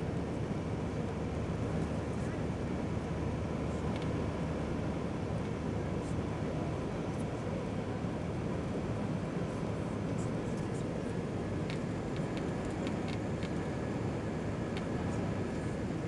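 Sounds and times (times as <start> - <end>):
airliner cabin engine noise: 0.0 - 16.0.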